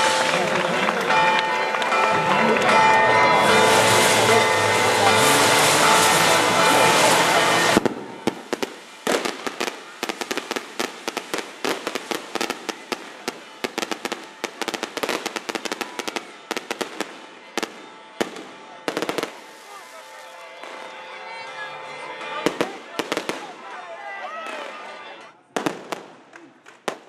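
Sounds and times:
fireworks cracking and popping: 0.0 - 21.0, 25.6 - 27.0
loud steady din: 0.0 - 23.8.

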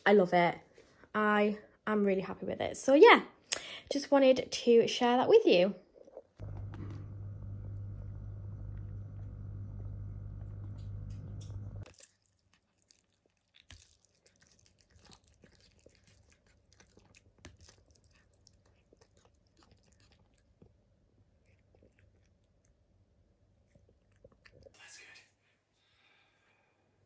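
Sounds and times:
appliance electrical hum: 6.4 - 11.9
cat chewing wet food: 6.4 - 24.8.

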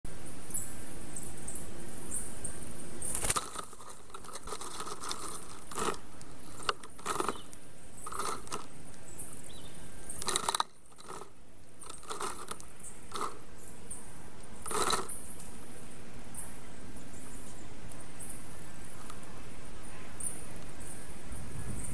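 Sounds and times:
sticks knocking and scraping: 3.1 - 8.7, 10.2 - 13.4, 14.6 - 15.1.

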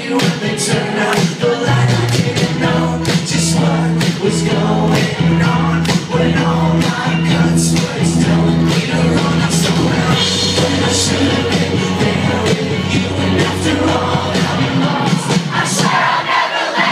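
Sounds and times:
man singing: 0.0 - 15.4
electric guitars: 0.0 - 15.8
steady drumbeat: 0.0 - 16.9
bass guitar: 0.2 - 15.9.

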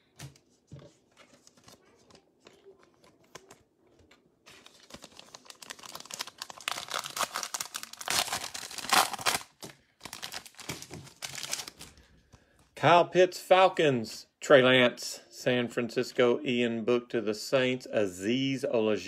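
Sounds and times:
foil wrapper crinkling and tearing: 4.5 - 11.9.

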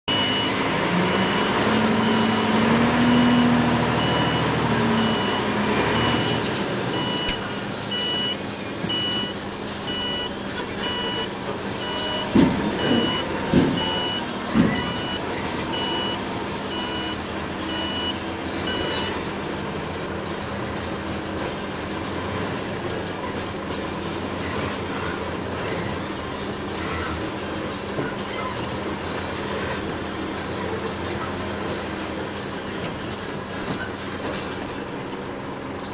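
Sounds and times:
diesel truck engine running: 0.0 - 35.9
reversing alarm beeping: 0.1 - 19.3.

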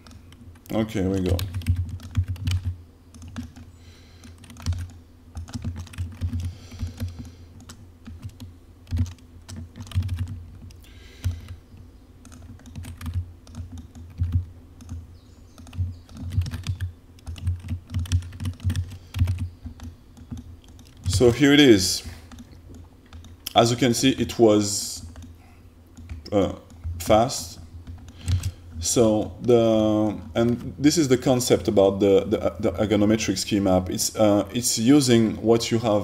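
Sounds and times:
computer keyboard typing: 0.0 - 11.6, 12.2 - 21.4, 22.3 - 24.0, 25.0 - 27.2, 27.8 - 30.7.

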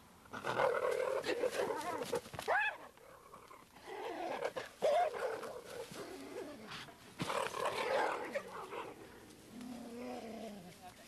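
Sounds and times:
cheetahs scuffling: 4.3 - 11.0.

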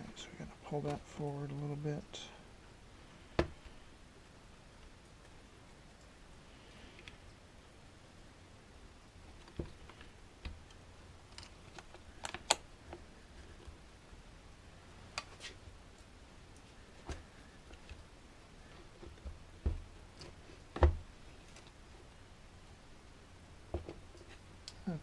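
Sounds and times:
small parts clicking and tapping: 9.4 - 13.0.

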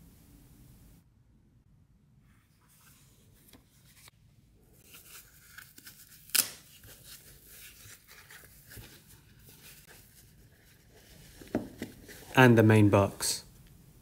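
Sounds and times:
tissue paper rustling: 4.8 - 12.4.

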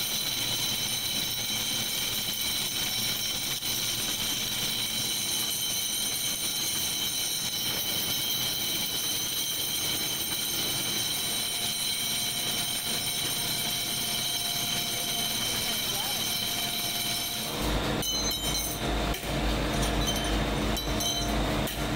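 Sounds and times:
high-pitched machine whine: 0.0 - 21.9
low steady machine tone: 0.0 - 21.9
factory machinery rumble: 10.6 - 21.9.

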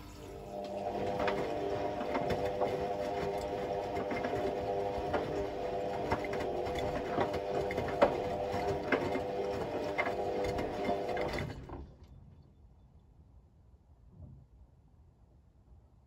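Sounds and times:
washing machine motor whine: 0.0 - 12.0.

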